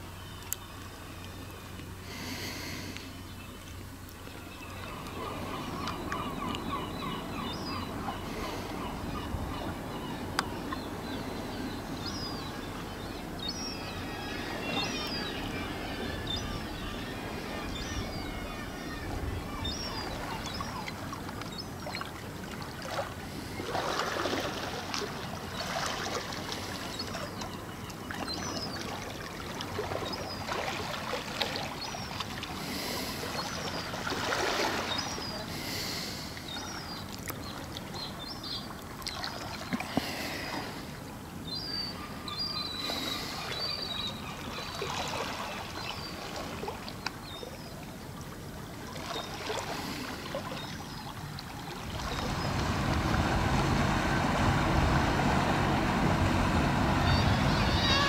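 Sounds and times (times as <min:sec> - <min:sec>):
water washing and splashing: 0:51.2 - 0:58.0.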